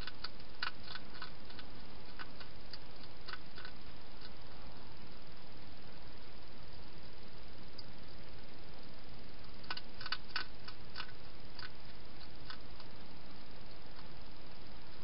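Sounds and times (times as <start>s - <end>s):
hedgehog chewing and crunching: 0.0s - 4.4s, 9.4s - 13.0s
steady hiss: 0.0s - 15.0s.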